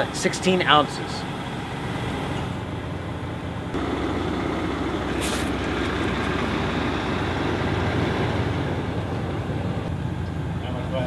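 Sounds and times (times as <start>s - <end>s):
vehicle engine rumbling: 0.0s - 11.0s
short hiss: 5.1s - 5.7s.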